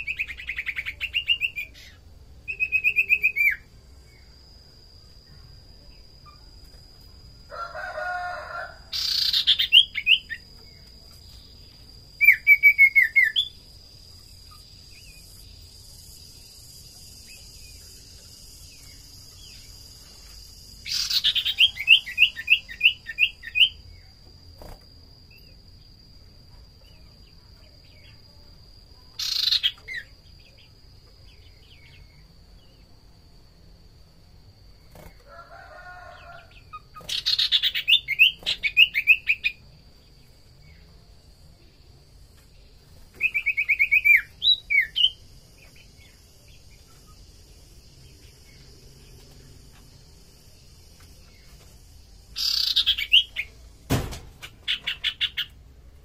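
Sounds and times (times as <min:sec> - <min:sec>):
bird chirping: 0:00.0 - 0:04.4, 0:08.9 - 0:24.1, 0:29.1 - 0:33.0, 0:36.7 - 0:41.0, 0:43.0 - 0:49.9, 0:52.3 - 0:53.7, 0:54.4 - 0:55.6.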